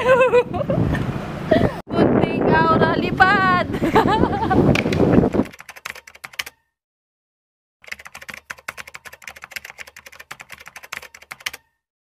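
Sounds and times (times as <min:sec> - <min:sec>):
rapid keyboard key clicks: 0:05.4 - 0:06.6, 0:07.8 - 0:11.7.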